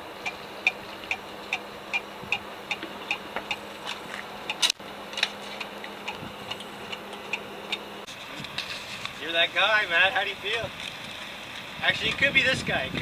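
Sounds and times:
steady ticking: 0:00.0 - 0:08.1.

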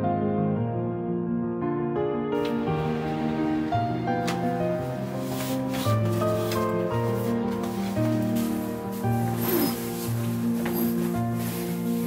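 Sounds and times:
soft instrumental music: 0:00.0 - 0:12.0
fabric bag rustling: 0:04.8 - 0:12.0.

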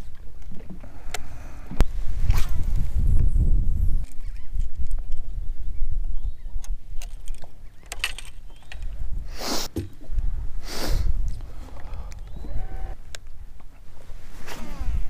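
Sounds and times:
wind buffeting microphone: 0:00.7 - 0:15.0
fishing rod and lure clicks: 0:04.0 - 0:05.3, 0:06.6 - 0:09.0.

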